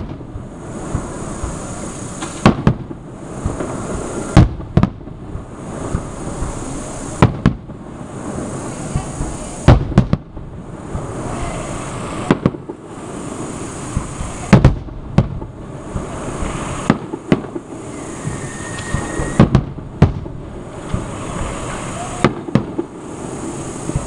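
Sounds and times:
firework shells bursting: 0:00.0 - 0:24.0.

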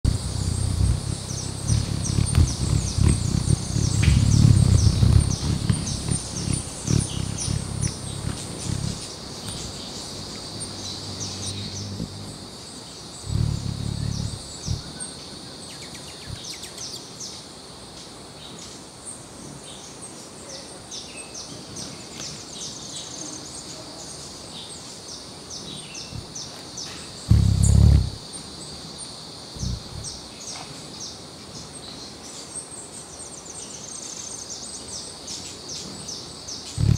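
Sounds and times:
steady high buzz: 0:00.0 - 0:15.3, 0:27.3 - 0:28.2, 0:29.6 - 0:30.3
hummingbird wings humming: 0:00.0 - 0:16.9, 0:27.2 - 0:28.3, 0:29.6 - 0:30.5.

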